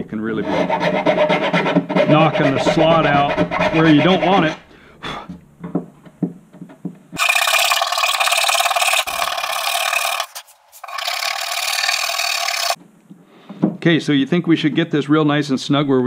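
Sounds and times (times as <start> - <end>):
hand file scraping wood: 0.3 - 4.7, 7.2 - 12.8.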